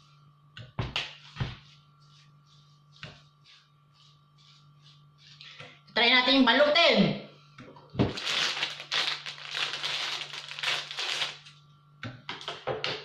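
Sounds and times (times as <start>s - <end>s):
plastic bag crinkling: 8.0s - 11.6s.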